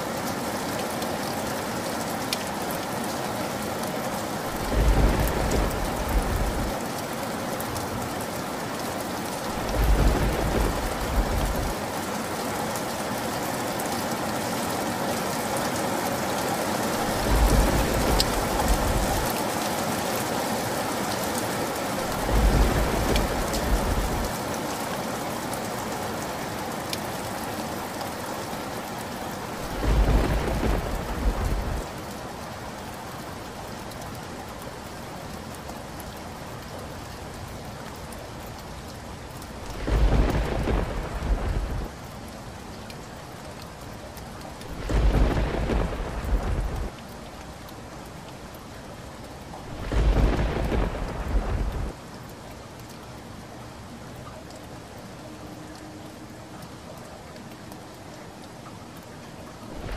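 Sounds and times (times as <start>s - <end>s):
steady rain: 0.0s - 59.9s
thunder rolling: 4.6s - 6.7s, 9.6s - 11.7s, 17.1s - 19.2s, 22.1s - 24.2s, 29.6s - 31.9s, 39.7s - 41.9s, 44.7s - 46.9s, 49.7s - 51.9s.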